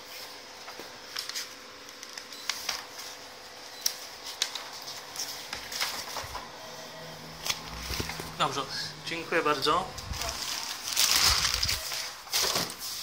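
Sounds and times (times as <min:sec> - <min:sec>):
paper pages rustling: 0:07.4 - 0:08.4, 0:10.0 - 0:13.0.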